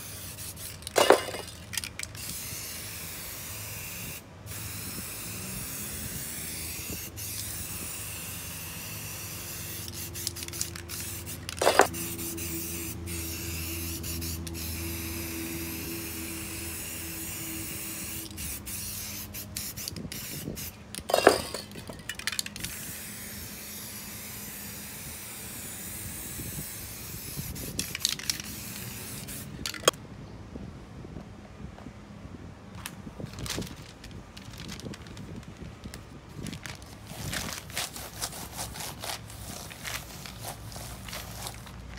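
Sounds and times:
spray paint can hissing: 0.0 - 29.9, 37.1 - 41.9.

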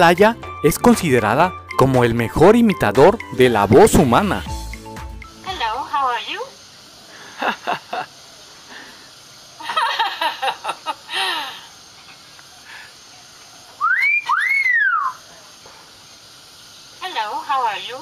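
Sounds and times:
bird whistles rising and falling: 13.8 - 15.3.

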